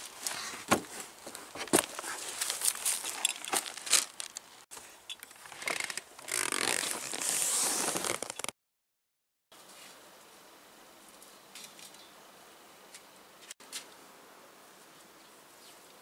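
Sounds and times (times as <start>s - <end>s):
fabric bag rustling: 0.0s - 4.4s, 5.4s - 8.5s
faint steady background noise: 9.5s - 16.0s.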